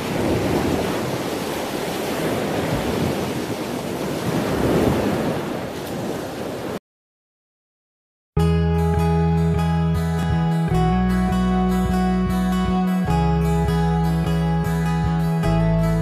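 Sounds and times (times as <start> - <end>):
ocean surf breaking on beach: 0.0 - 6.8
acoustic guitar music: 8.4 - 16.0.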